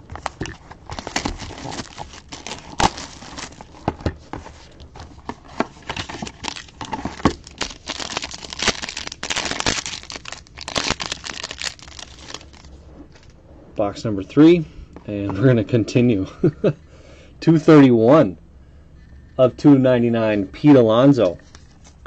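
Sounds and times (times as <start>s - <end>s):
foil wrapper crinkling and tearing: 0.1s - 3.8s, 5.8s - 12.7s.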